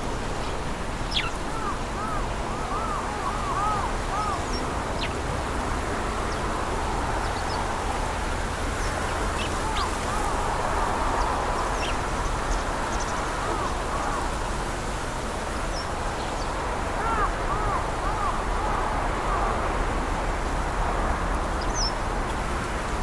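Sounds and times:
steady rushing noise: 0:00.0 - 0:23.0
birds calling: 0:01.1 - 0:05.2, 0:08.7 - 0:10.6, 0:15.7 - 0:19.5.

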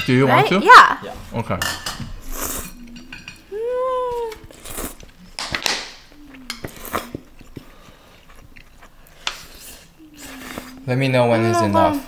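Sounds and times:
noodle slurping: 0:02.2 - 0:03.0, 0:04.1 - 0:05.4, 0:06.1 - 0:10.9
woman humming: 0:02.5 - 0:04.6, 0:06.1 - 0:07.4, 0:09.9 - 0:12.0.

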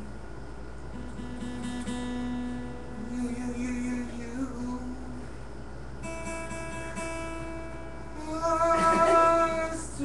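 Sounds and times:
acoustic guitar strum: 0:00.9 - 0:04.9, 0:06.0 - 0:10.0.

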